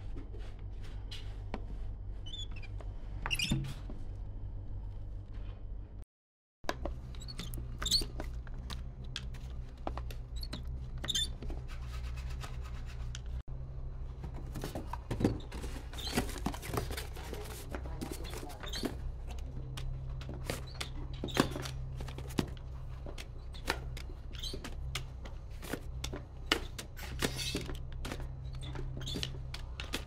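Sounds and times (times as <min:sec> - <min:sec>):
low machine hum: 0:06.7 - 0:30.0.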